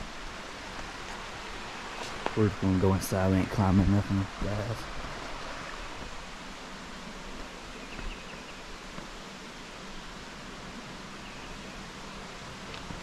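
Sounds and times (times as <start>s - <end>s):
river water flowing: 0.0s - 13.0s.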